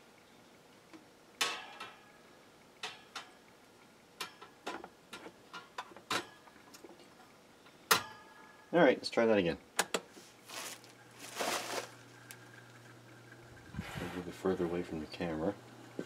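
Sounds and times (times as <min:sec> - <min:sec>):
fan guard clicks and taps: 0:02.8 - 0:03.5, 0:04.2 - 0:07.0, 0:09.8 - 0:10.1.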